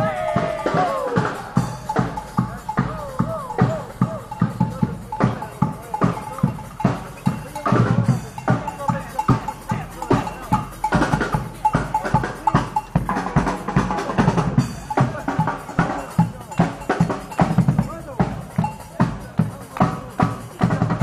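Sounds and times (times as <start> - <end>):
brass band playing: 0.0 - 6.3
steady drum beat: 0.0 - 21.0.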